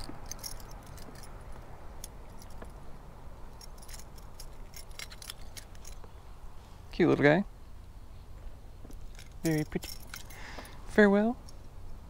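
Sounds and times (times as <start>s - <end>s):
metallic clicks and jingles: 0.0s - 6.2s, 8.8s - 12.0s.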